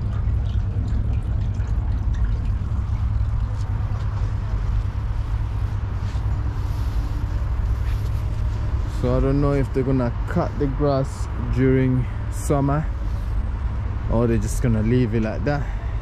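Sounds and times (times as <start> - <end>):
stream trickling over pebbles: 0.0 - 15.7
low rumble: 0.0 - 16.0.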